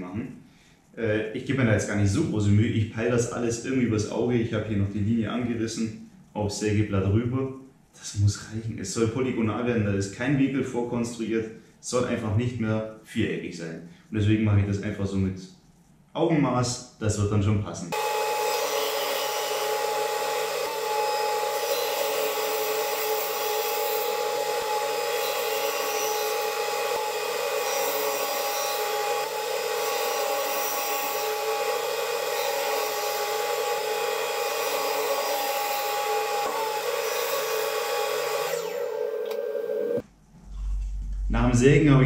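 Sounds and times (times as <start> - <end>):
table saw cutting wood: 18.0 - 40.0.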